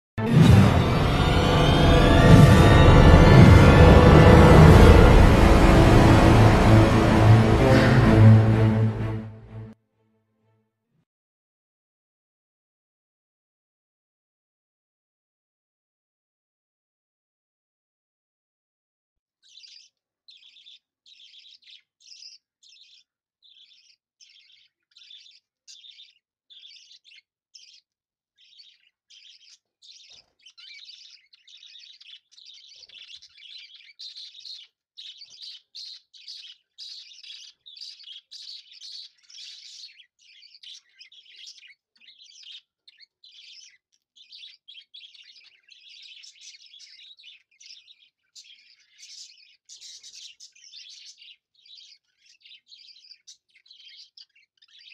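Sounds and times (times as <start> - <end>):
small birds chirping: 19.3 - 54.9.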